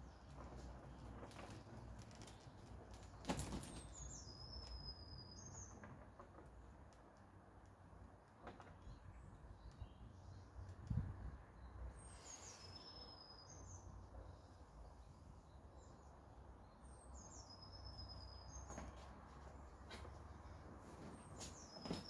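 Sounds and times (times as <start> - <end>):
songbird singing: 0.0 - 6.0, 8.7 - 22.0
faint outdoor background: 0.0 - 22.0.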